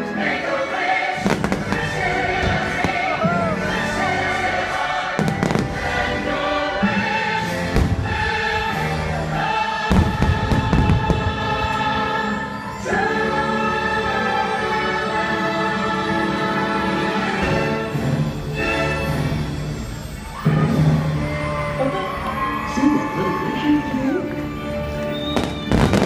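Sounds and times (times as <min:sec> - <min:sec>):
music with choir singing: 0:00.0 - 0:26.0
firework bangs: 0:01.2 - 0:03.3, 0:05.2 - 0:05.9, 0:09.9 - 0:11.6, 0:25.2 - 0:26.0.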